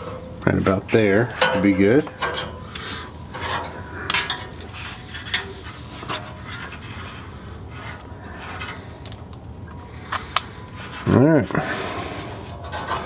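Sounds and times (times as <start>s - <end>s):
light metallic clicks and scrapes: 1.3s - 11.2s.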